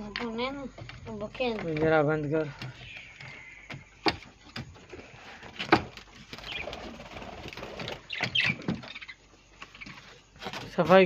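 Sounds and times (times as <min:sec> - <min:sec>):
wings fluttering: 0:00.9 - 0:11.0
parrots chirping: 0:02.3 - 0:10.2.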